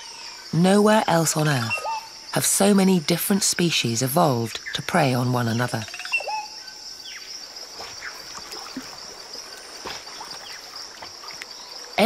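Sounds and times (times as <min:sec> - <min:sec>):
high-pitched insect chorus: 0:00.0 - 0:12.0
faint bird chirps: 0:05.8 - 0:12.0.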